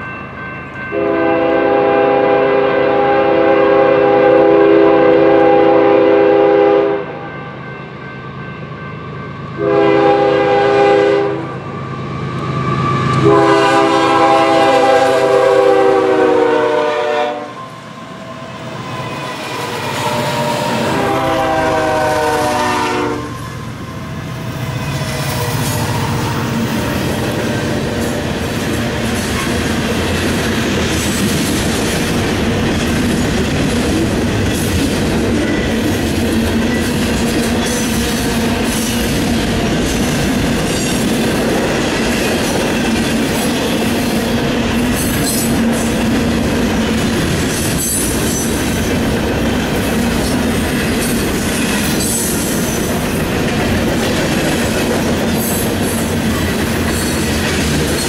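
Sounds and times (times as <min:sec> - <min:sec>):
train wheels rumbling on rails: 0:09.4 - 0:58.0.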